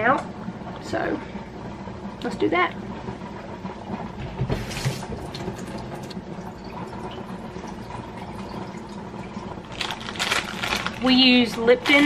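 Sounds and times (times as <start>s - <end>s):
water running into saucepan: 4.6s - 9.8s.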